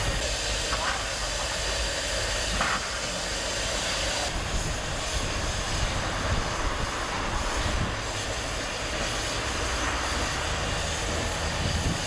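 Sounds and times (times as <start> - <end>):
steam hissing: 0.0 - 12.0
low locomotive rumble: 4.0 - 12.0.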